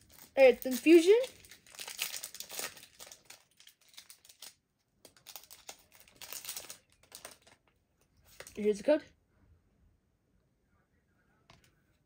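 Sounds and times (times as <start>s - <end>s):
foil wrapper crinkling: 0.0s - 7.7s.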